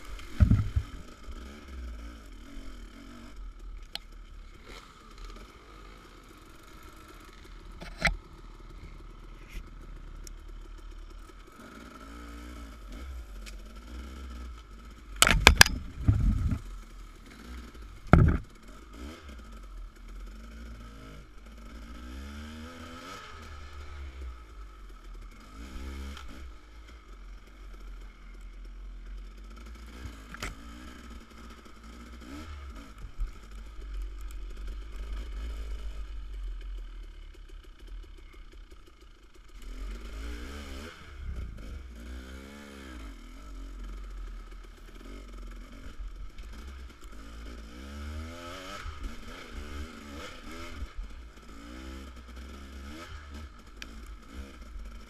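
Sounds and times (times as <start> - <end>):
steady low rumble: 0.0 - 4.6, 12.4 - 22.1, 26.4 - 39.8, 41.0 - 42.0
dirt bike engine revving: 0.0 - 55.0.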